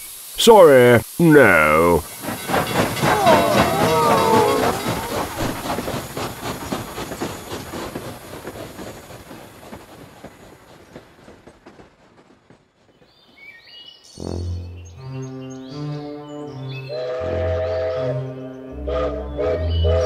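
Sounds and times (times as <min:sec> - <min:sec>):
steam locomotive chugging and hissing: 0:00.0 - 0:14.7, 0:16.8 - 0:20.0
music: 0:14.1 - 0:20.0.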